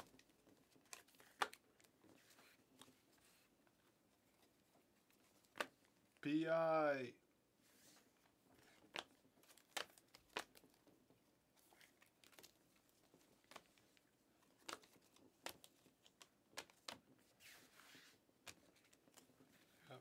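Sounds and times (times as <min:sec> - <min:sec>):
cards clicking and snapping: 0:00.0 - 0:03.0, 0:05.4 - 0:05.9, 0:08.6 - 0:11.0, 0:11.6 - 0:17.1, 0:18.4 - 0:19.4
cards rustling: 0:00.0 - 0:07.0, 0:07.7 - 0:20.0.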